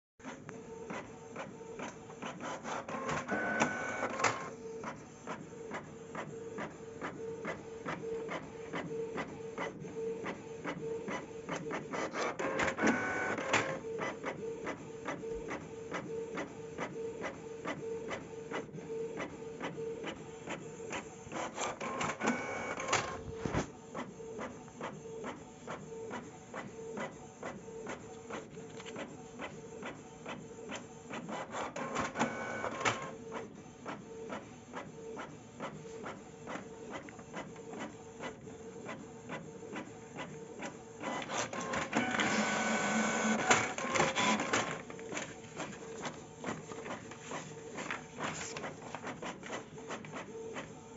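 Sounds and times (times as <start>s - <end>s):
printer clicking: 0.2s - 50.7s
printer hum: 0.2s - 50.9s
printer whirring: 0.2s - 50.9s.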